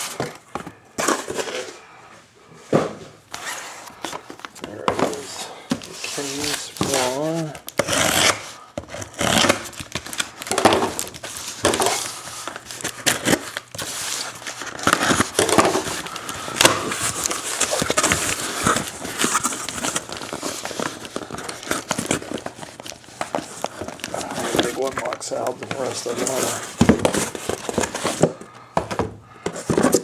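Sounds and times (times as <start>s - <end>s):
cardboard scraping: 2.7s - 9.8s
plastic wrap crinkling: 3.9s - 28.6s.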